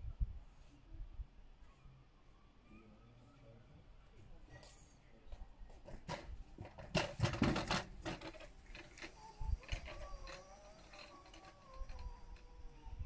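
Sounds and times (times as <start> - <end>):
rattling clatter: 5.9 - 12.6.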